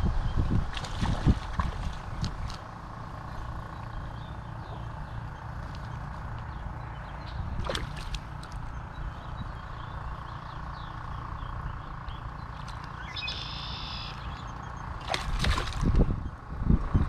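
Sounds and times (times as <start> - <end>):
low rumble: 0.0 - 17.0
fish splashing and thrashing: 0.6 - 4.1, 7.1 - 9.2, 12.5 - 16.2
bird trill: 8.6 - 15.2.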